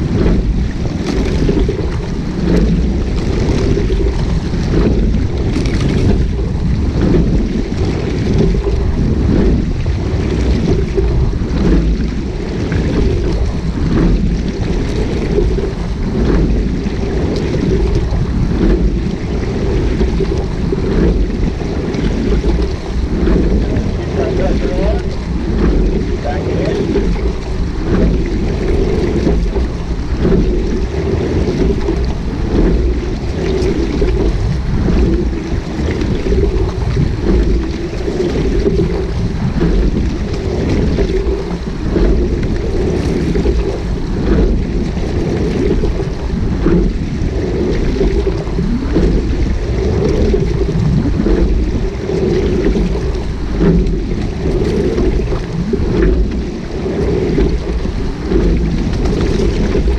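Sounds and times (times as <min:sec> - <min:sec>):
water rushing along hull: 0:00.0 - 0:59.9
wind buffeting microphone: 0:00.0 - 0:59.9
faint knocks of rowing strokes: 0:33.9 - 0:46.0, 0:48.6 - 0:59.9.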